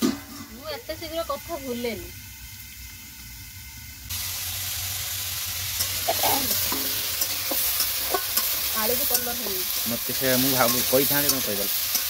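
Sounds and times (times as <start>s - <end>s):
metal ladle scraping pan: 0.0s - 0.7s, 5.8s - 12.0s
vegetables sizzling in hot oil: 0.0s - 12.0s.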